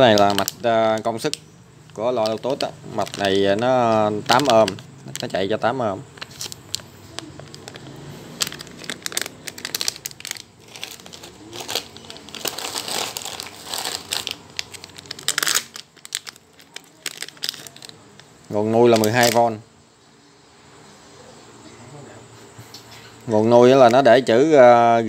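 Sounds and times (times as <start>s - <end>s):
plastic bags crinkling: 0.0s - 19.6s.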